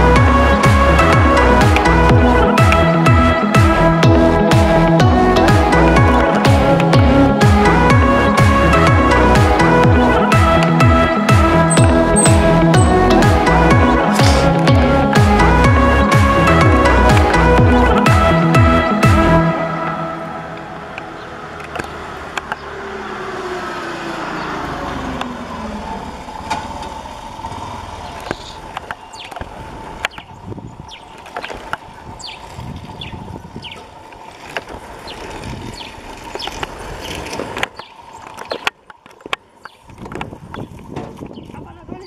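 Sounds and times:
steady engine hum: 0.0s - 41.2s
vehicle driving past: 19.4s - 28.8s.

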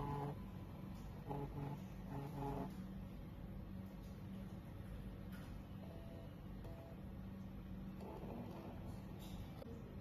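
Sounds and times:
camera motor humming: 0.0s - 0.4s, 1.2s - 2.8s.

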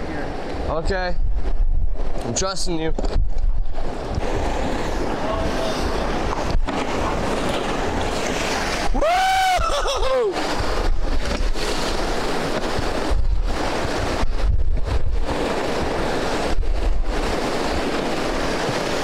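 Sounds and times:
wind gusting on microphone: 0.0s - 19.0s
whitewater rushing: 4.2s - 14.2s, 15.2s - 19.0s
person whooping: 8.9s - 10.4s.

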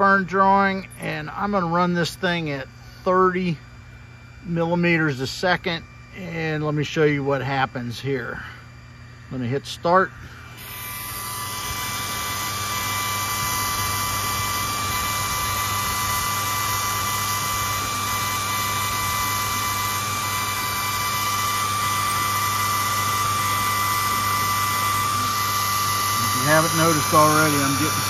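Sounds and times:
cooling fan whine: 0.0s - 28.0s
laser engraver hissing: 4.0s - 28.0s
stepper motors driving: 10.1s - 28.0s.

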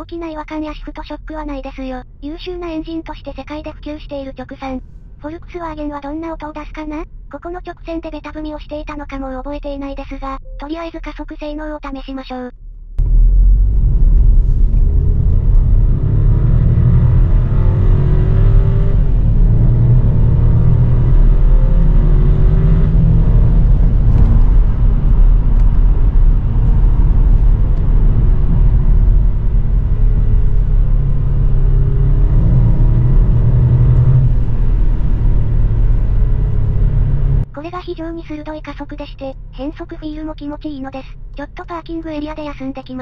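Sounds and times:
road rumble: 0.0s - 9.9s, 12.6s - 43.0s
car engine accelerating: 13.0s - 37.5s.

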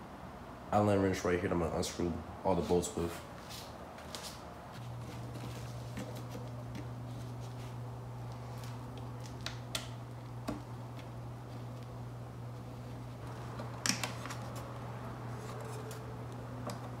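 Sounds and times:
low hum: 4.8s - 17.0s.

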